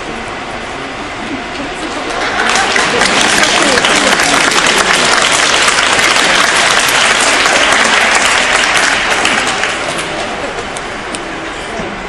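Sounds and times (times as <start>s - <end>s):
audience applause: 1.8s - 10.8s.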